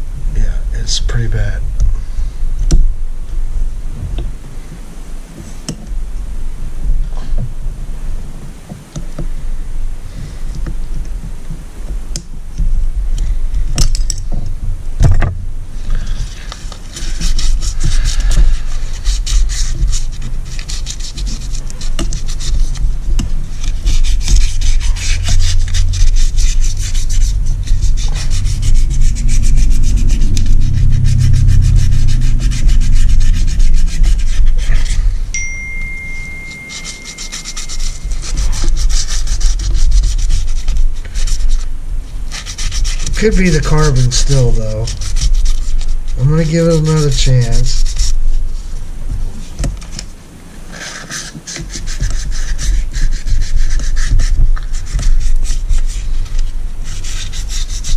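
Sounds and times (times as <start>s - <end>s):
hand scraping metal piston: 15.3s - 41.6s
thin steady tone: 24.2s - 39.3s.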